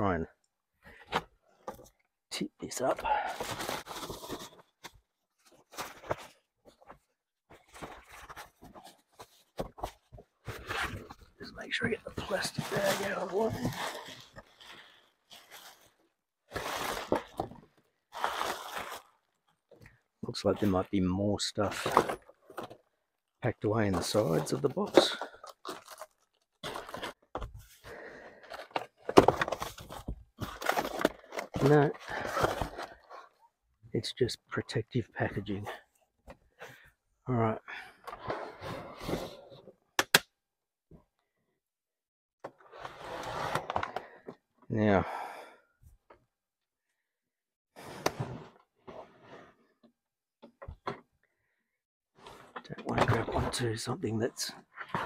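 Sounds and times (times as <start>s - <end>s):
cardboard scraping rustles: 12.2s - 17.5s.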